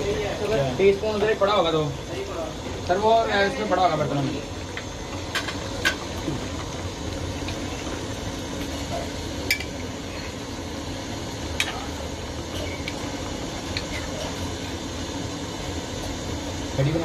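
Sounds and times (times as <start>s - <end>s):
steady cooking hiss: 0.0s - 17.0s
metal spoon stirring in pot: 4.6s - 10.6s, 11.4s - 14.7s.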